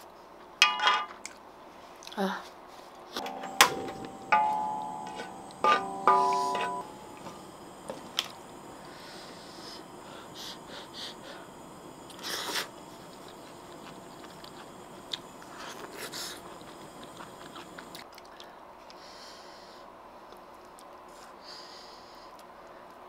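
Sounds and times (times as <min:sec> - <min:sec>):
slurping broth: 0:12.1 - 0:18.0
person chewing noodles: 0:12.1 - 0:18.5.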